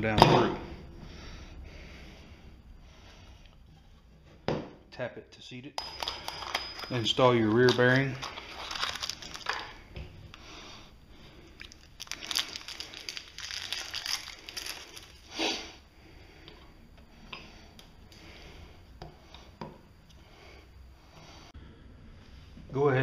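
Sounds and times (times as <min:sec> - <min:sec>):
packaging crinkling and rustling: 0:07.4 - 0:09.8, 0:11.6 - 0:15.3.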